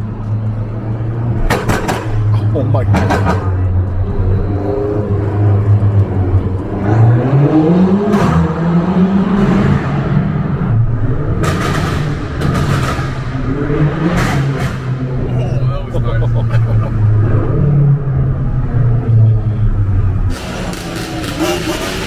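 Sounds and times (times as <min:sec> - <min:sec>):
car engine revving: 0:01.0 - 0:22.0
exhaust cracks: 0:20.3 - 0:22.0.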